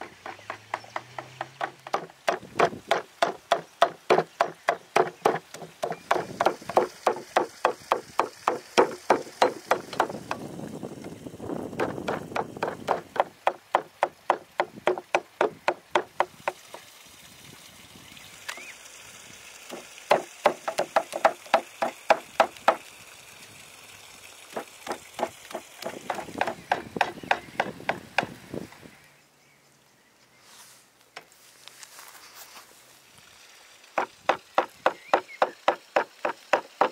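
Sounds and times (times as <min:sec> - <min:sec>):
cleaver chopping meat on wood: 0:00.0 - 0:10.4, 0:11.8 - 0:16.6, 0:19.7 - 0:22.8, 0:24.6 - 0:28.3, 0:34.0 - 0:36.9.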